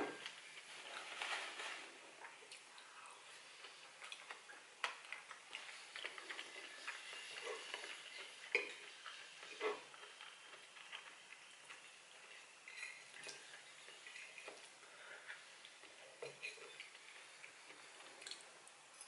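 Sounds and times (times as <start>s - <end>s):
quiet chewing: 0.1s - 19.0s
fork clinking and scraping bowl: 11.8s - 14.7s, 16.2s - 17.0s.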